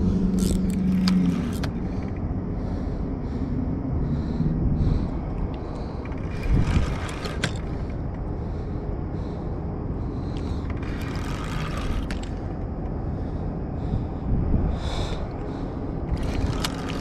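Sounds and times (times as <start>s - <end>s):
fishing reel rasping clicks: 0.0s - 2.2s, 6.1s - 8.0s, 10.3s - 12.5s, 16.1s - 17.0s
low rumble: 0.0s - 17.0s.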